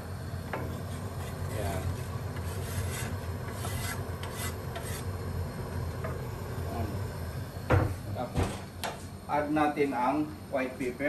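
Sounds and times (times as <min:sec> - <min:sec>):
knife scraping on cutting board: 0:00.7 - 0:05.1.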